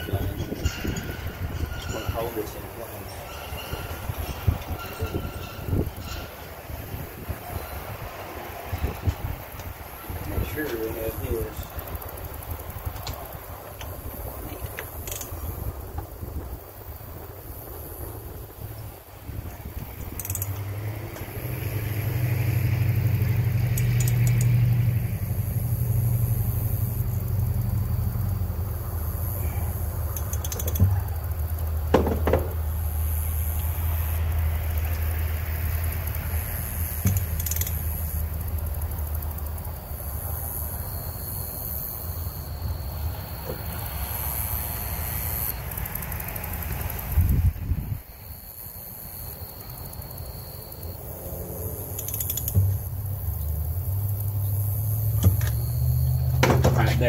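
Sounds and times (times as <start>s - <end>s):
metal tools clinking: 0.0s - 6.5s.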